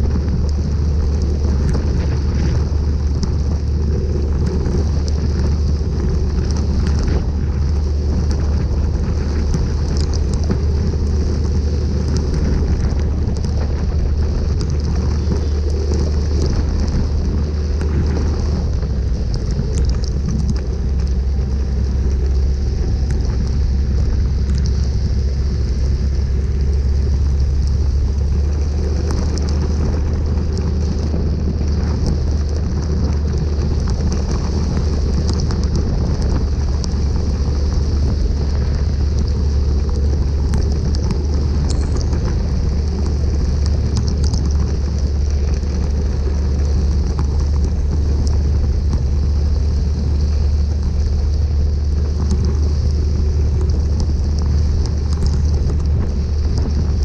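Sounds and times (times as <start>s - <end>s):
raindrops tapping on camera: 0.0s - 57.0s
tyres hissing on wet road: 0.0s - 57.0s
wind rumble on microphone: 0.0s - 57.0s.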